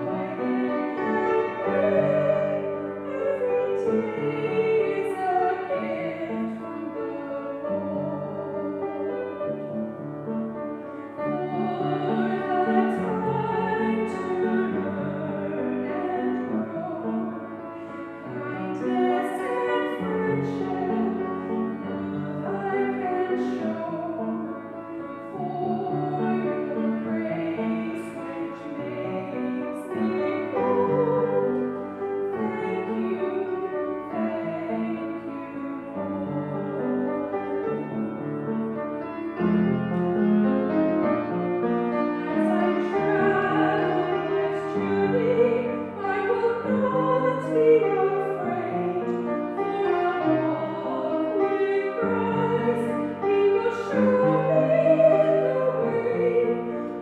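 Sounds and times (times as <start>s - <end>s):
woman singing: 0.0s - 9.4s, 11.2s - 17.5s, 18.2s - 37.6s, 42.2s - 57.0s
piano accompaniment: 0.0s - 57.0s.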